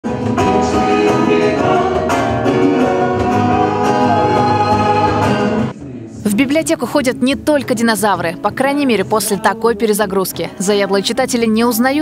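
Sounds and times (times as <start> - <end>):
acoustic guitar strumming: 0.1 - 5.7
man singing: 9.1 - 10.1.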